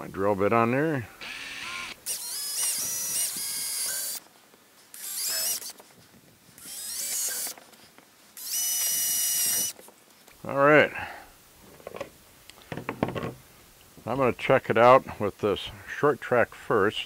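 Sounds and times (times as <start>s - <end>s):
cordless drill whining: 1.2s - 4.2s, 4.9s - 5.8s, 6.6s - 7.6s, 8.4s - 9.8s.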